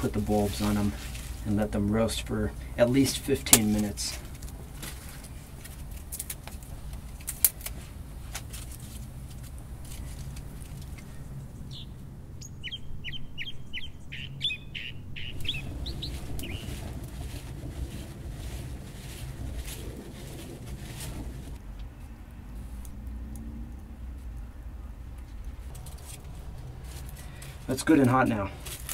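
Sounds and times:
wood fire crackling and popping: 0.0s - 11.0s, 15.3s - 21.7s, 25.2s - 28.9s
small bird chirping: 10.9s - 16.9s.

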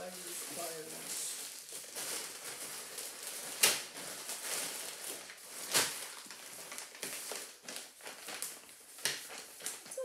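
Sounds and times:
paper envelopes handled: 0.0s - 10.0s
plastic packaging crinkling: 0.0s - 10.0s
sharp plastic crackles: 0.0s - 10.0s.

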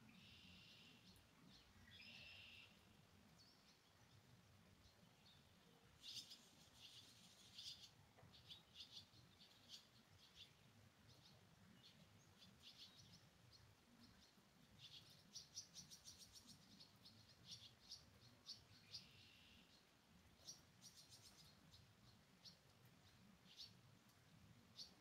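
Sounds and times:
faint bird chirps: 0.0s - 25.0s.

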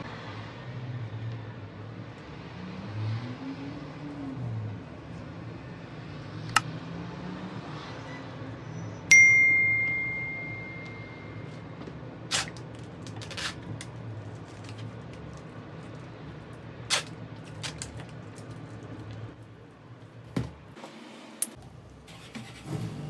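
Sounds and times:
notification bell ding: 9.1s - 11.5s.

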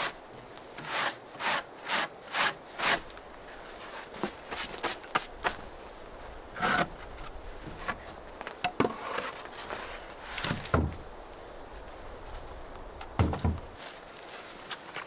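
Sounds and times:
short rustle: 2.4s - 15.0s
board thudding down: 10.4s - 11.0s, 13.2s - 13.7s
wooden boards knocking: 13.2s - 13.6s.

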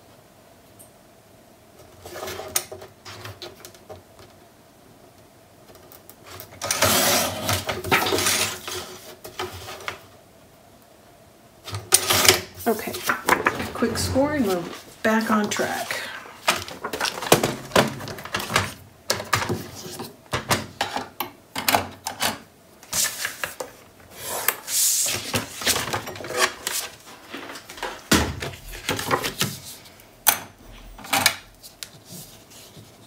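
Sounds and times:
card and board clicking and knocking: 16.4s - 22.2s.

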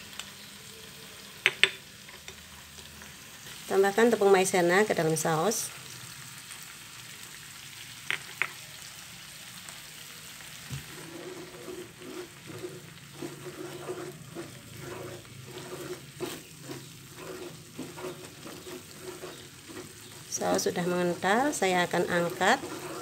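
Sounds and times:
sauce sizzling in a frying pan: 0.0s - 23.0s
wooden spatula stirring sauce: 10.7s - 23.0s.

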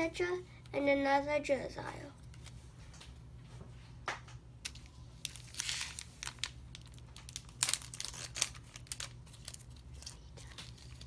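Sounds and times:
foil wrapper crinkling: 4.6s - 11.0s.

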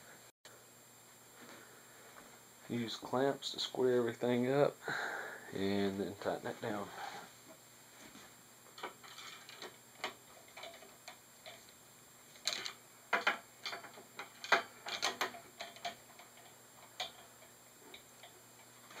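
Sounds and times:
bar clamps clicking: 12.4s - 18.3s.

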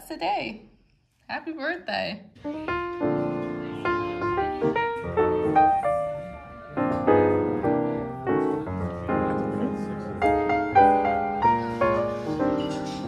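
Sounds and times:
piano music: 2.4s - 13.0s.

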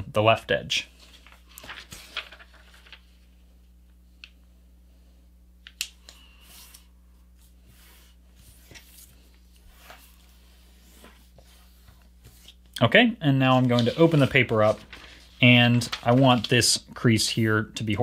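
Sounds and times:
paper rustling and crinkling: 1.0s - 3.2s, 8.4s - 12.7s, 13.4s - 16.8s.

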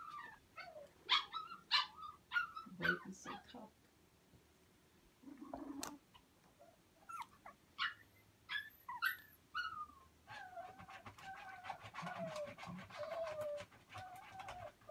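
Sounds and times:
puppies yelping: 0.0s - 3.5s, 7.0s - 14.9s
puppy whining: 0.0s - 3.5s, 5.2s - 14.9s.

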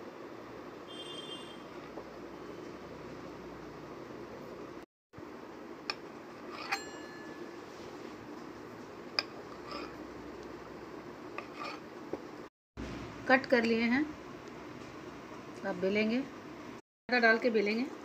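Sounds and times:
knife clinking on steel worktop: 6.5s - 7.5s.

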